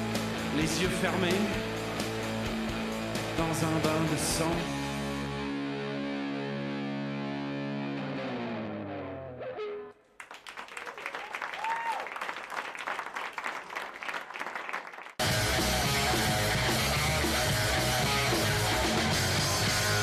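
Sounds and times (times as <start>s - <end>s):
tv theme music: 0.0s - 9.8s, 15.2s - 20.0s
audience clapping: 10.0s - 15.4s.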